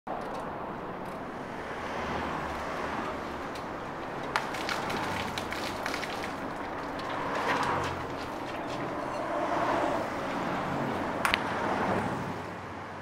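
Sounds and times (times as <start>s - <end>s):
outdoor background noise: 0.1s - 13.0s
liquid pouring and splashing: 4.3s - 7.4s.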